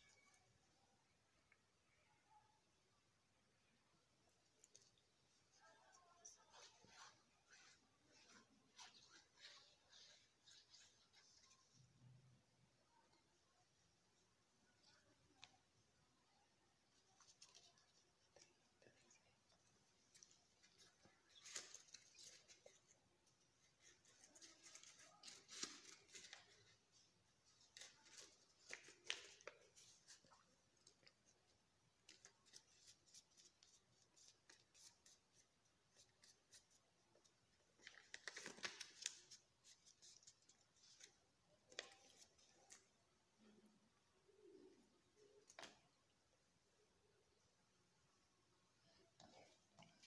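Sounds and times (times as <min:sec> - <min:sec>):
paper crackling and rustling: 0:20.0 - 0:42.9.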